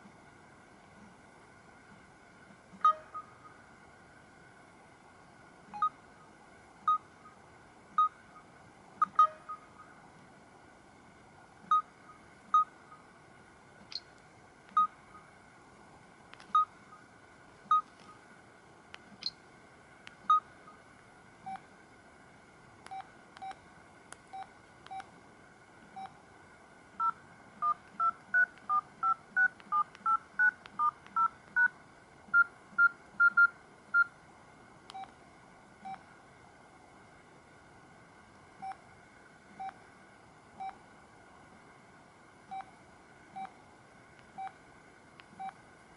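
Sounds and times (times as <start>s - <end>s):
short electronic key beeps: 2.8s - 3.3s, 9.0s - 9.7s.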